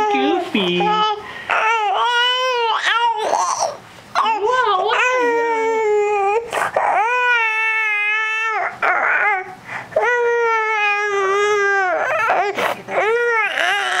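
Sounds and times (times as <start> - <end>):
baby crying: 0.0 - 14.0
baby gasping breaths: 9.6 - 10.0.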